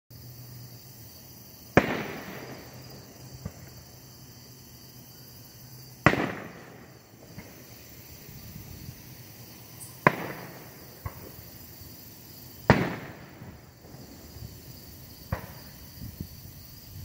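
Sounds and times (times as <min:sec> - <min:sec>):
loud firework bangs: 0:01.6 - 0:04.0, 0:06.0 - 0:09.2, 0:09.8 - 0:11.9, 0:12.5 - 0:16.3
faint firework pops: 0:01.7 - 0:03.8, 0:06.0 - 0:07.7, 0:09.8 - 0:11.4, 0:12.7 - 0:14.1, 0:15.3 - 0:15.8.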